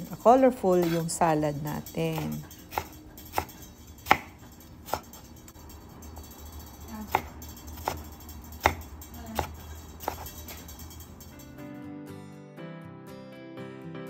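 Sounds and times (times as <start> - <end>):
knife chopping on wooden board: 2.1 - 5.1, 7.1 - 8.0, 8.6 - 10.4.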